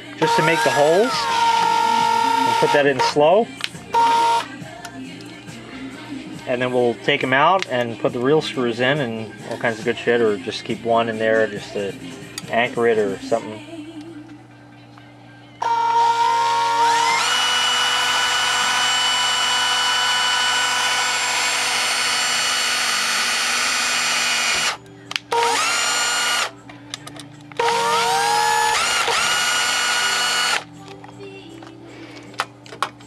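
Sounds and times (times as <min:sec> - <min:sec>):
power drill motor whine: 0:00.2 - 0:03.2, 0:03.9 - 0:04.5, 0:15.6 - 0:26.5, 0:27.6 - 0:30.7.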